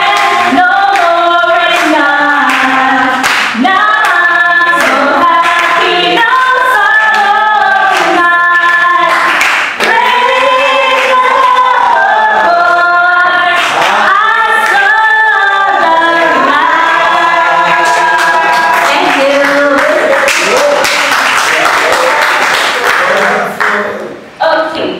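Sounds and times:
woman singing into microphone: 0:00.0 - 0:20.3
voices singing along: 0:00.0 - 0:20.8
hands clapping: 0:00.1 - 0:01.1, 0:01.7 - 0:04.2, 0:04.8 - 0:06.0, 0:07.0 - 0:10.4, 0:17.6 - 0:24.0.

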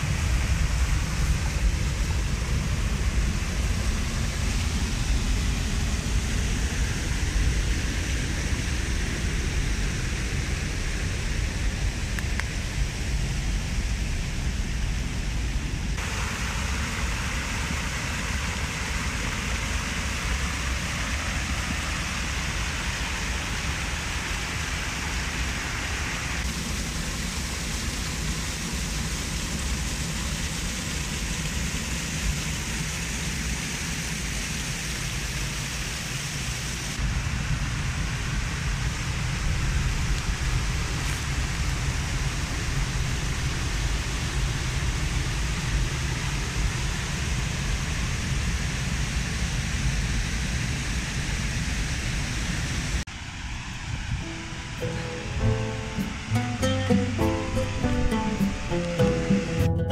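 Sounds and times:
waterfall rushing over rocks: 0:00.0 - 0:59.7.

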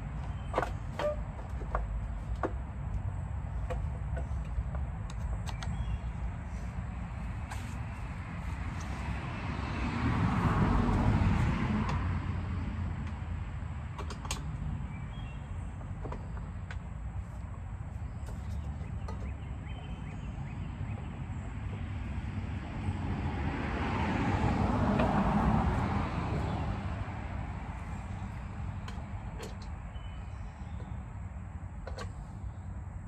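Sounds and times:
vehicle passing by: 0:06.4 - 0:13.8, 0:19.7 - 0:29.3.

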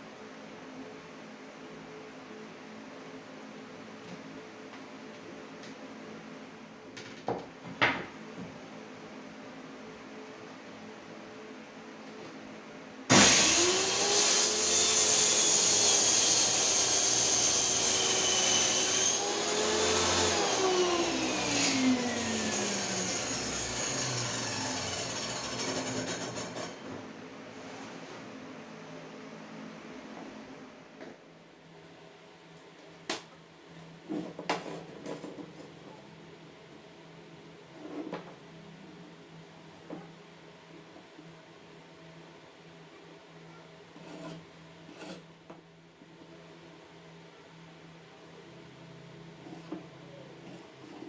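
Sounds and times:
table saw motor whining: 0:13.1 - 0:26.8.

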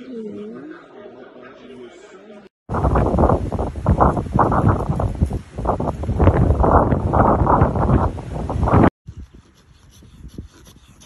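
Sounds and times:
wind buffeting microphone: 0:02.7 - 0:11.0.

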